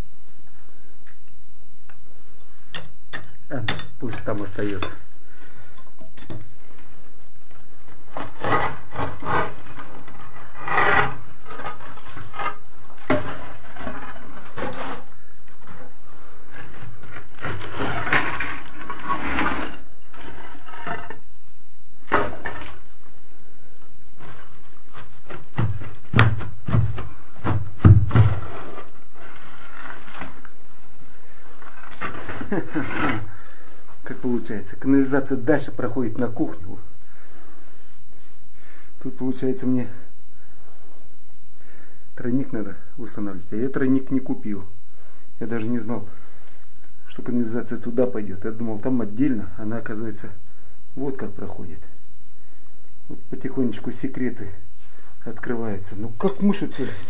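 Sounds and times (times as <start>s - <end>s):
heavy thuds: 25.4s - 28.6s.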